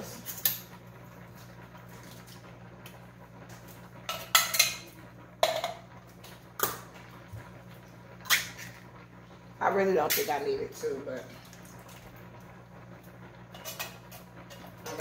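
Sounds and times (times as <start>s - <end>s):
low steady hum: 0.0s - 15.0s
utensils and dishes clattering: 4.1s - 5.8s, 13.5s - 15.0s.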